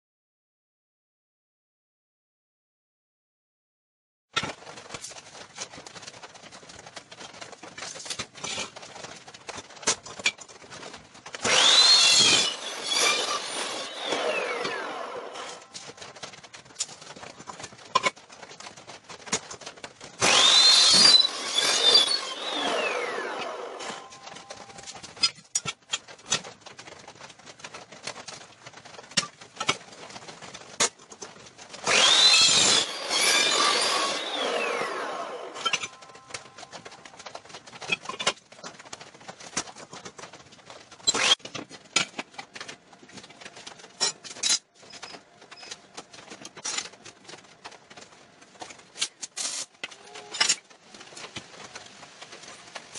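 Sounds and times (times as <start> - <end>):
saw motor winding down whine: 11.4 - 15.7, 20.2 - 24.6, 31.9 - 36.0
chop saw cutting metal: 11.4 - 15.8, 20.2 - 24.7, 31.8 - 36.4, 41.0 - 41.6.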